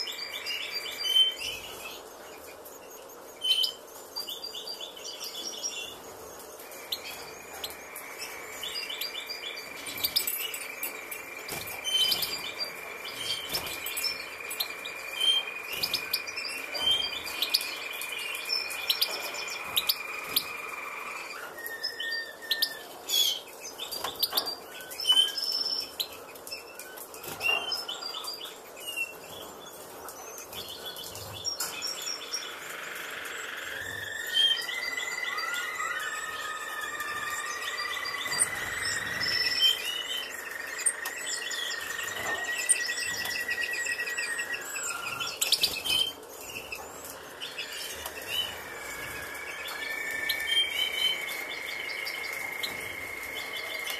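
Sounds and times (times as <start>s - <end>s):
finches chirping: 0.0s - 53.9s
high-pitched whine: 5.9s - 23.0s, 31.6s - 53.9s.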